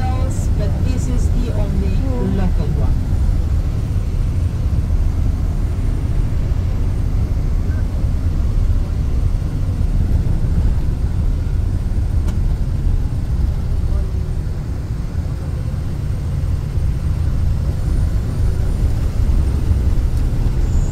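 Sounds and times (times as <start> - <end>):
bus engine and tyres rumbling: 0.0 - 20.9.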